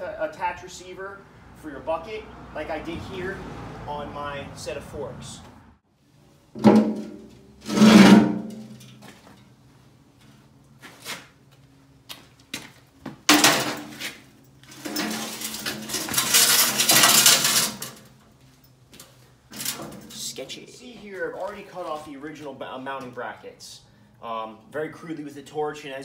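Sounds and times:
metal bucket clanging on table: 6.6s - 9.0s, 13.3s - 14.0s, 14.7s - 18.0s
metal grinding scrape: 6.8s - 8.8s, 13.9s - 18.1s, 19.5s - 20.4s.

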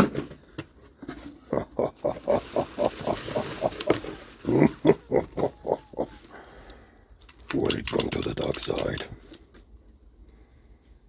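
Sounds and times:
packaging rustling: 2.1s - 6.6s.

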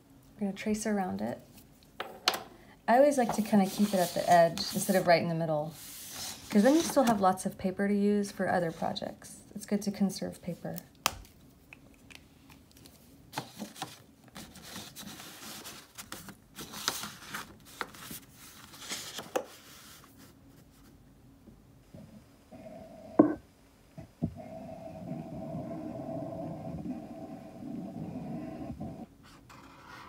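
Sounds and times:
paper rustling: 3.2s - 5.1s, 5.7s - 7.4s, 12.7s - 20.9s
paper scraping: 3.2s - 5.1s, 5.7s - 7.3s
marker scratching on paper: 3.3s - 5.0s.

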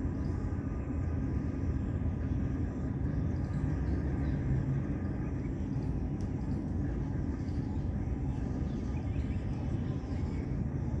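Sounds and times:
low outdoor background rumble: 0.0s - 11.0s.

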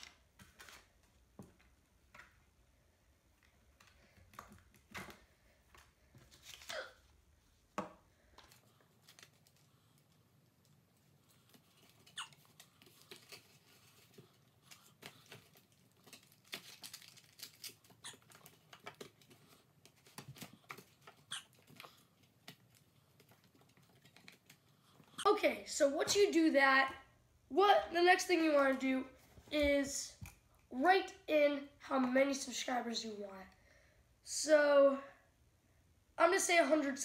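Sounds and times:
paper rustling: 0.0s - 1.2s, 3.8s - 7.1s, 8.2s - 25.1s.

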